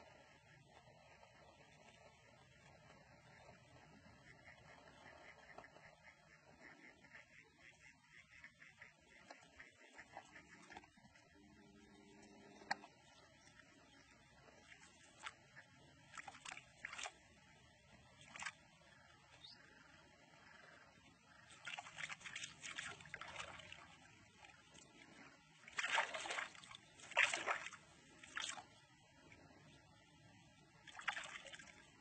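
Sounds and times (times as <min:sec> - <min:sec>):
splashing in shallow water: 0:14.4 - 0:18.8, 0:21.3 - 0:29.4, 0:30.8 - 0:32.0.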